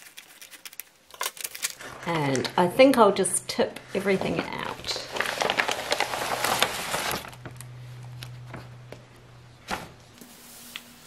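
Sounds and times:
plastic mailer bag rustling: 4.0 - 8.8.

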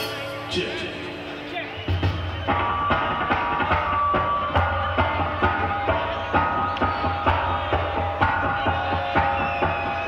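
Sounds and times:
drum kit beat: 1.9 - 10.0.

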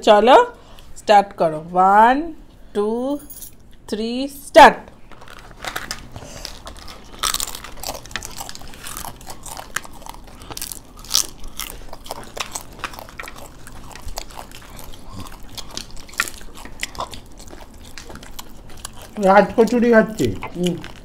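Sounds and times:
crunchy food chewing: 5.1 - 21.0.

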